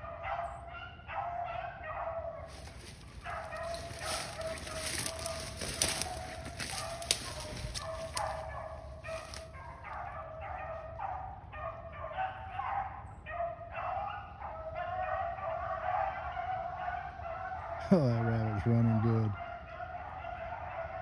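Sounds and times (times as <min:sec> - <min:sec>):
hounds baying: 0:00.0 - 0:21.0
rustling: 0:02.5 - 0:09.5.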